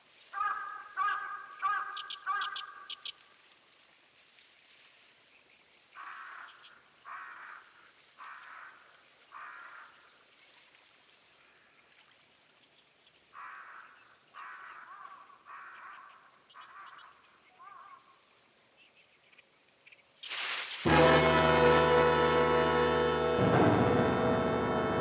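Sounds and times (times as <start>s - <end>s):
bird calling: 0.3s - 3.2s, 13.4s - 18.2s.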